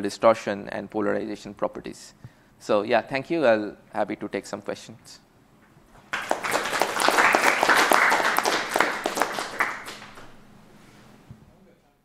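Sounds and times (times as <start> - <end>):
audience applauding: 6.0 - 10.4.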